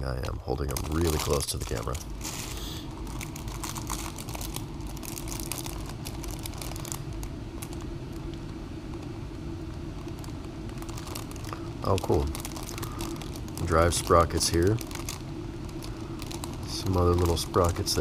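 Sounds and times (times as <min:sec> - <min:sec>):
low hum: 0:00.0 - 0:18.0
plastic bag crinkling: 0:00.0 - 0:18.0.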